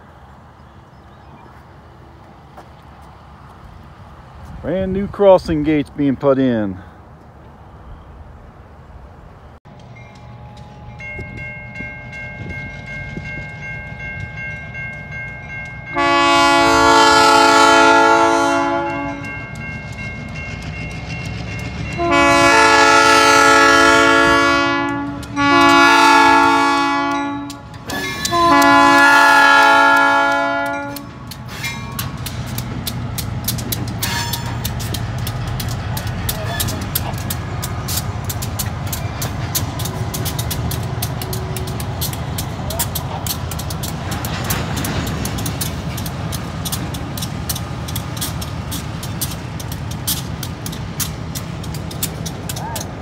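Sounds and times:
train wheels clicking on rails: 9.6s - 53.0s
locomotive horn: 15.8s - 19.4s, 21.9s - 31.1s.

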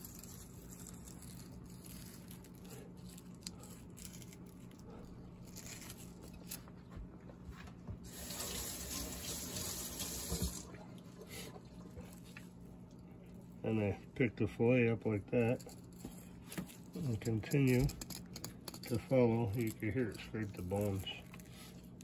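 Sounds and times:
tap water running into sink: 8.1s - 10.8s.

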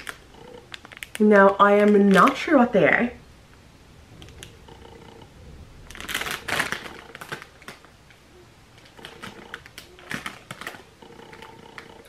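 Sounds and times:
plastic snack bag crinkling: 0.0s - 3.2s, 5.8s - 8.2s, 8.8s - 12.0s
scattered clicks: 4.2s - 5.3s, 8.8s - 12.0s.

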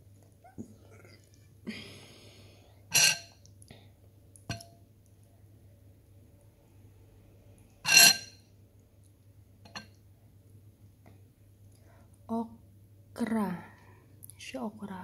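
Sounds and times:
tableware clinking: 2.9s - 3.4s, 4.5s - 4.7s, 7.9s - 8.4s, 9.7s - 10.0s.

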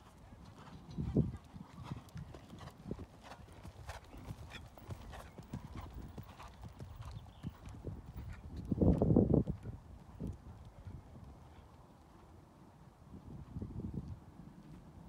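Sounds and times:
horse hoofbeats on sand: 0.0s - 10.4s.

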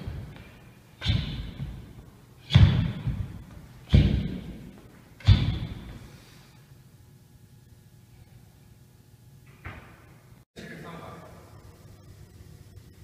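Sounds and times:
heavy thuds with long echo: 1.0s - 6.0s.

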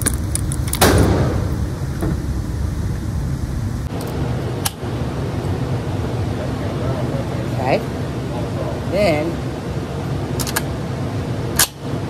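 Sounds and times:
cartridges and rifle magazine clicking: 0.0s - 0.9s
steady low rumble: 0.0s - 12.0s.

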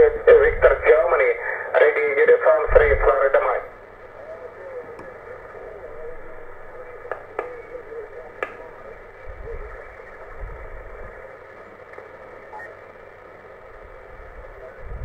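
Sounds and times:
radio receiver hiss: 0.0s - 15.0s
sharp clicks: 8.4s - 8.7s.

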